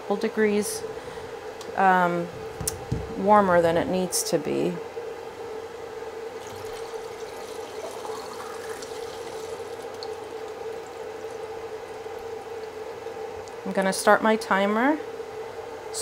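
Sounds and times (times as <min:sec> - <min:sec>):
liquid pouring into tank: 0:06.3 - 0:13.6.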